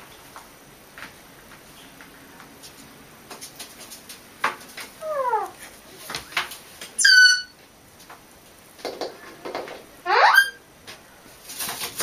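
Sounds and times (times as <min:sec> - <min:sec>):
cat calling: 0:05.0 - 0:05.6
parrot calling: 0:05.0 - 0:05.6, 0:07.0 - 0:07.6, 0:10.0 - 0:10.6.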